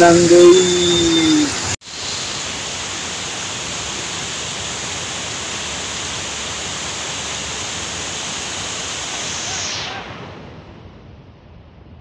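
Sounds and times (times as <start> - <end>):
stream rushing over rocks: 0.0 - 9.6.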